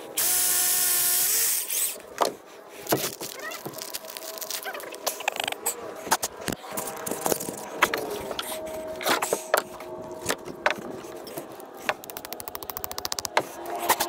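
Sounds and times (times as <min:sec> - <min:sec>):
rapid ratchet-like clicking: 0:11.9 - 0:13.8.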